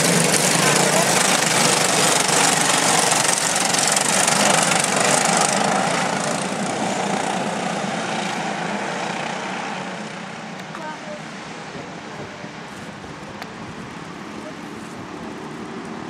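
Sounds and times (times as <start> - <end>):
racing kart engines: 0.0 - 16.0.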